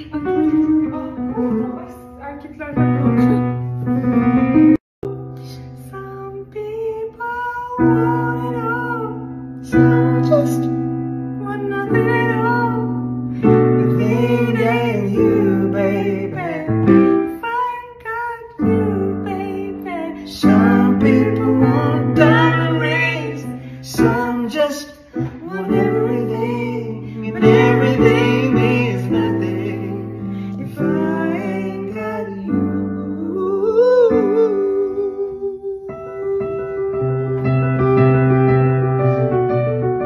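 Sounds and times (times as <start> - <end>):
piano chords: 0.0 - 40.0
woman singing: 5.1 - 10.7, 11.3 - 35.2.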